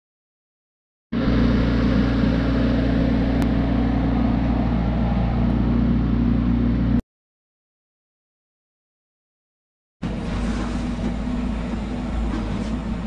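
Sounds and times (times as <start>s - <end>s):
mini digger engine running: 1.2s - 7.0s, 10.0s - 13.0s.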